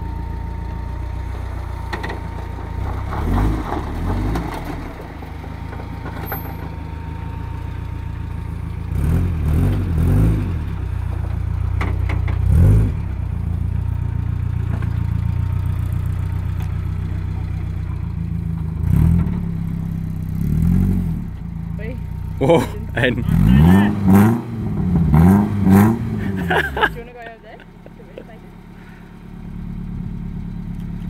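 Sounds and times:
car engine revving at low revs: 7.7s - 31.0s.

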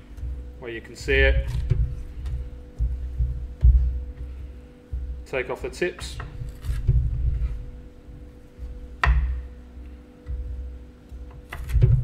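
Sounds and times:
dull thuds on chopping board: 9.0s - 9.4s.

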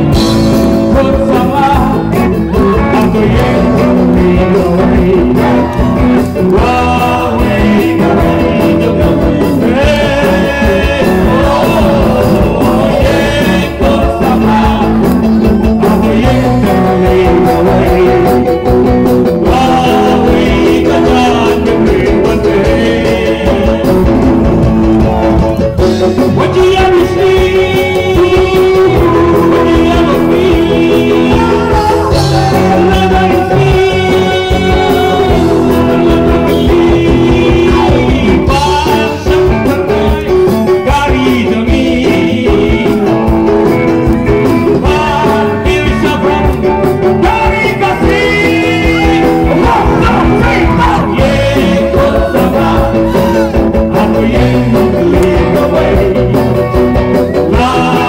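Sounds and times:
electric guitar: 0.0s - 58.0s
live rock band playing: 0.0s - 58.0s
person singing: 0.0s - 58.0s.

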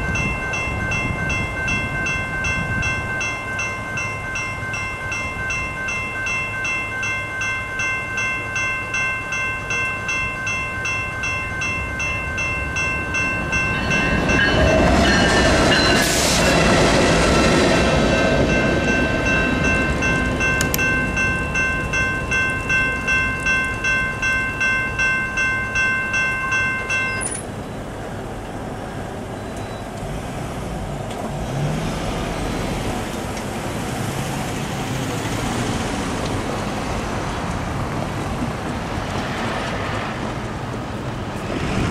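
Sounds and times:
railroad crossing bell ringing: 0.0s - 29.9s
diesel locomotives passing: 0.0s - 41.9s
road traffic: 0.0s - 41.9s.

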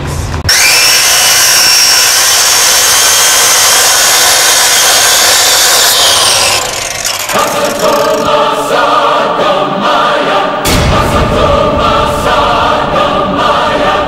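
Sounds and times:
angle grinder cutting steel: 0.5s - 8.4s.

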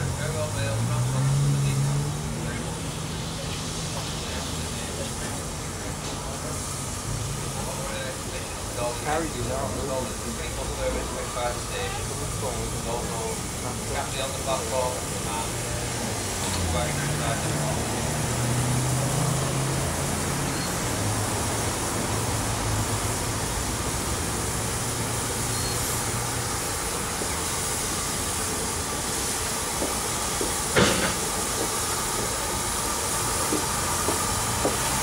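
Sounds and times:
locomotive low rumble: 0.0s - 35.0s
steam hissing: 0.0s - 35.0s
sharp knock: 30.8s - 31.2s.

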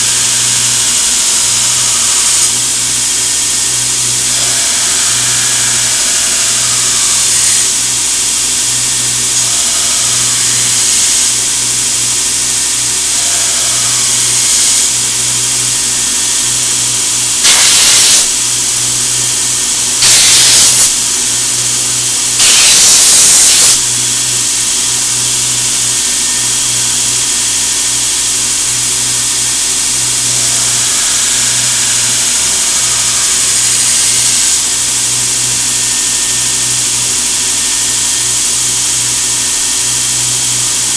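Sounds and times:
belt grinder humming: 0.0s - 40.9s
compressed air blowgun blasts: 17.4s - 18.3s, 20.0s - 21.0s, 22.4s - 23.8s.

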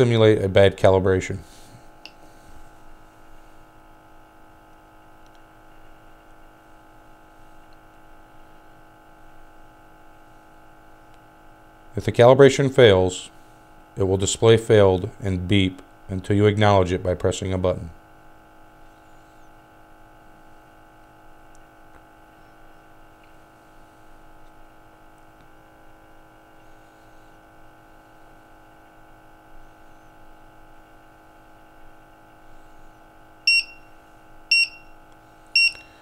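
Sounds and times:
faint steady hum: 0.0s - 36.0s
gas detector alarm beeps: 33.4s - 35.0s, 35.6s - 36.0s.

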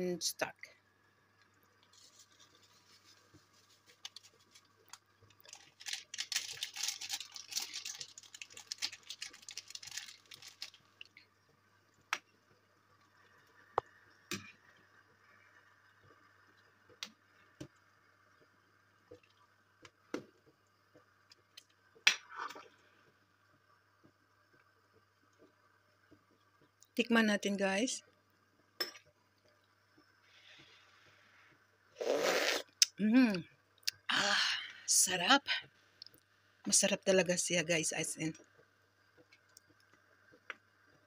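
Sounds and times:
faint steady hum: 0.0s - 41.0s
plastic packet crinkling: 2.0s - 11.2s.

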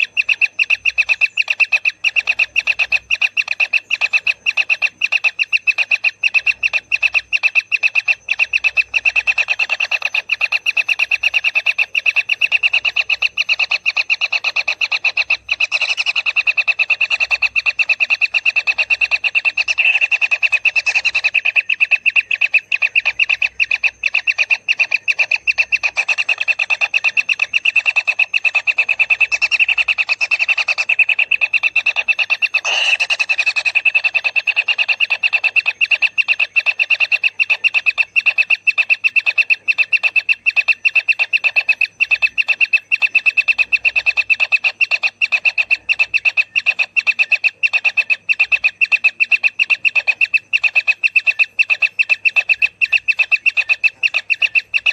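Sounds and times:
nestlings buzzy begging churr: 0.0s - 54.9s.

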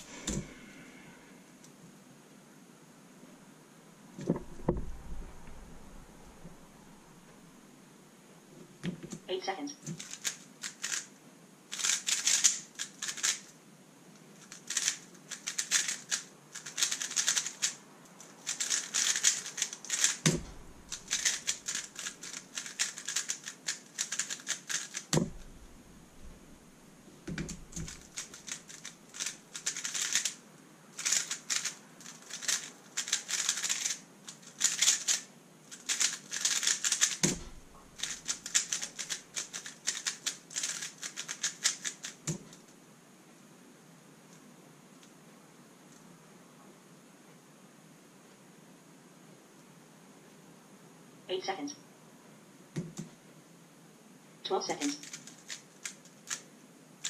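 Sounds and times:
speedcube plastic clicking: 9.9s - 11.1s, 11.7s - 25.4s, 27.3s - 30.4s, 31.0s - 42.7s, 55.0s - 56.5s
dull thumps against desk: 20.3s - 20.6s, 25.2s - 25.5s.

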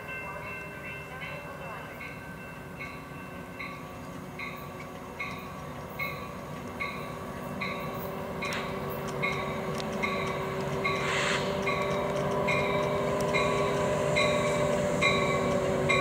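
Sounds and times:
passenger train rumble: 0.0s - 16.0s.

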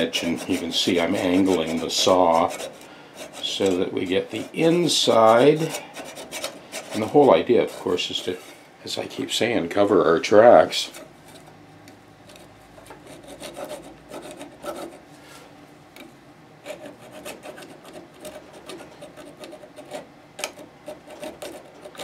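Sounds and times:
handsaw rasping through wood: 0.0s - 8.4s, 13.1s - 15.0s, 16.6s - 22.0s.

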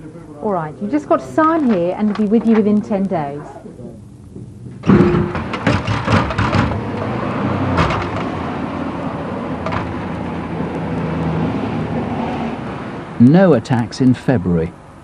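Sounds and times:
street traffic with engine hum: 1.2s - 15.0s
sharp knocks and bangs: 4.8s - 8.5s, 9.6s - 10.2s.

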